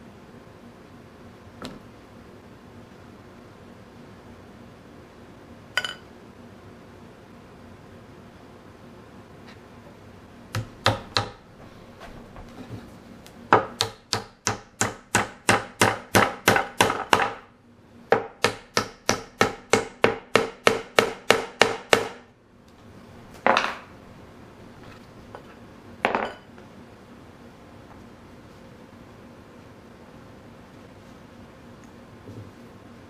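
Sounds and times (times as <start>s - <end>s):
hammer striking wooden wedge: 10.6s - 11.4s, 13.6s - 17.4s, 18.1s - 22.2s.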